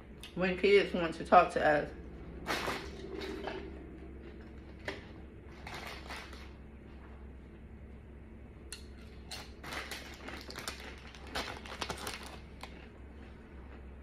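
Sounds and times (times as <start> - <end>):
chips crunching: 8.8 - 13.0
chip bag rustling: 9.4 - 12.9.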